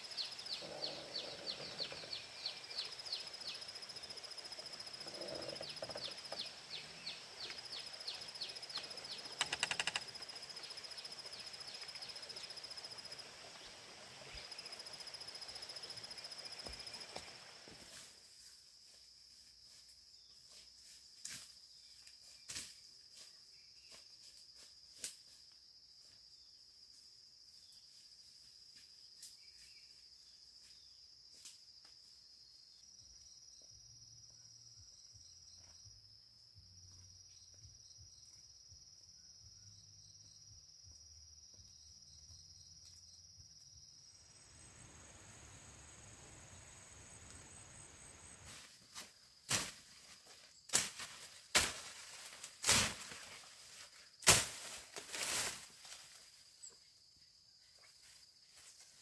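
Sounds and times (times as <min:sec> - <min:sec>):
high-pitched insect trill: 0:00.0 - 0:59.0
light hiss: 0:44.2 - 0:49.8.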